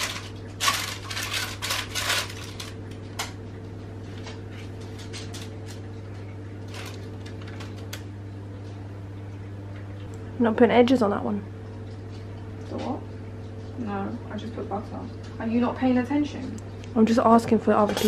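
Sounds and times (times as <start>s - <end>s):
baking paper crinkling: 0.0s - 3.4s, 4.0s - 8.0s
low steady hum: 0.0s - 18.0s.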